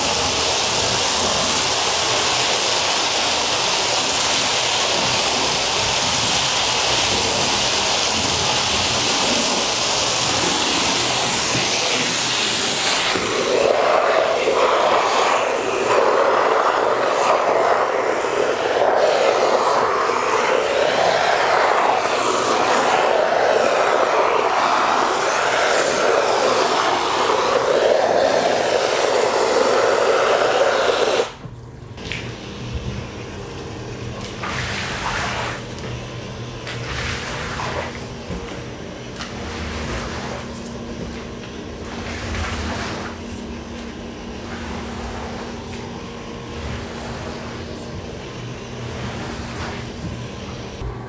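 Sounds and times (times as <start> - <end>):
pressurised water spraying hiss: 0.0 - 31.4
squeegee pushing water: 2.4 - 31.3, 39.1 - 50.8.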